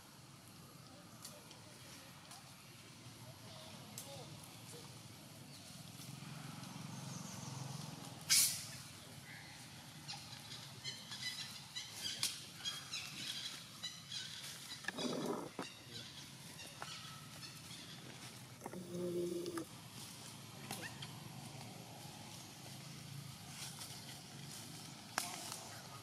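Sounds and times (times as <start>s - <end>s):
quiet outdoor background: 0.0s - 26.0s
high-pitched chirping animal calls: 13.9s - 17.7s.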